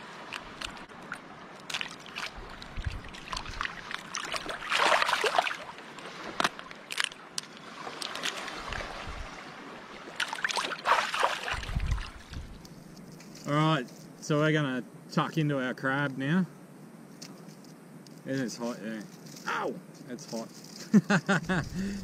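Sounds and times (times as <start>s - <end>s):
seawater sloshing and splashing: 0.0s - 12.6s
crab shell cracking: 6.4s - 7.5s.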